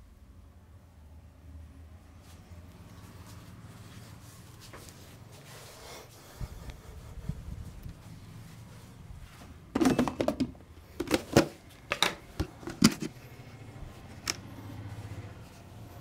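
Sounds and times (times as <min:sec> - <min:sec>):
plastic jar rattling and clicking: 0:09.8 - 0:13.1.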